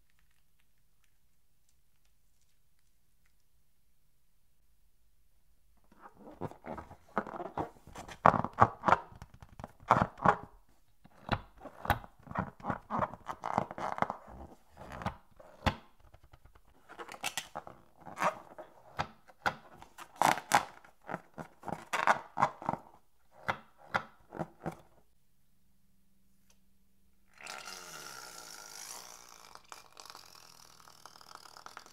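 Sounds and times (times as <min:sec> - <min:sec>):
balloon rubber squeaking: 0:05.8 - 0:10.5, 0:11.2 - 0:15.6, 0:27.3 - 0:31.9.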